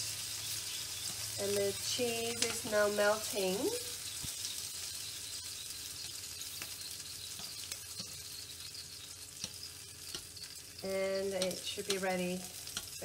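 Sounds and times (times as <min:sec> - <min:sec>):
dumplings sizzling in a pan: 0:00.0 - 0:13.0
tongs clicking against pan: 0:02.2 - 0:02.7, 0:06.0 - 0:13.0.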